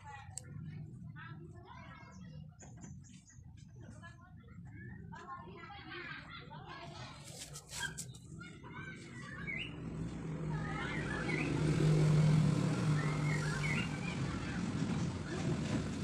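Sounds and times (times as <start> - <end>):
vehicle engine hum: 7.3 - 16.0
bird chirping: 12.9 - 14.2.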